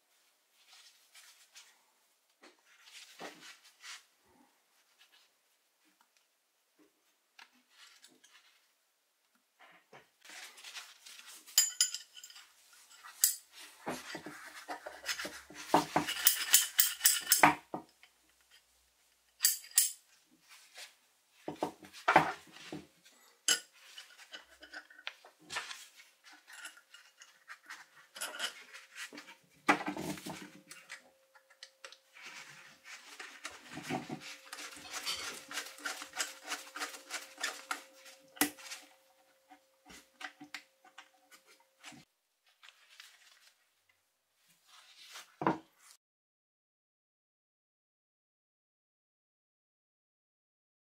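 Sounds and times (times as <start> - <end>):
metal hand tools clinking: 11.5 - 13.5, 15.9 - 17.6, 19.4 - 20.0, 34.2 - 38.9.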